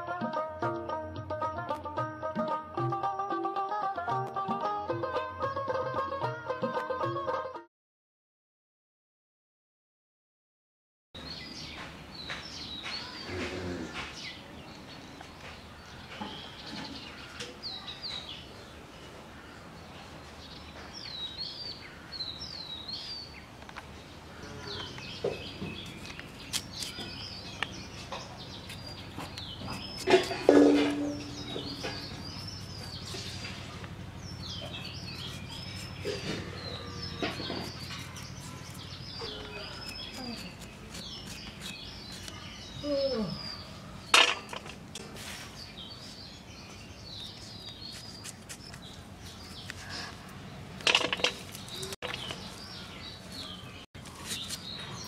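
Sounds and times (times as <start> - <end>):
small birds chirping: 11.2 - 55.0
knife cutting carrot over bowl: 28.6 - 33.5, 34.8 - 42.4
ringing clank: 30.5 - 31.8.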